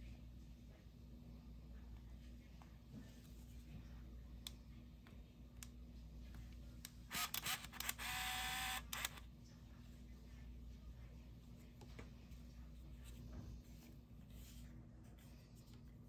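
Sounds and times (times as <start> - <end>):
camera motor whir: 7.1 - 9.2.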